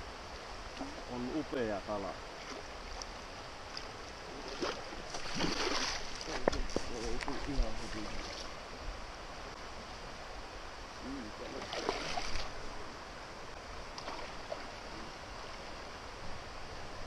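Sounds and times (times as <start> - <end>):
river current rushing: 0.0 - 17.0
fish splashing: 4.4 - 6.4, 11.6 - 12.6.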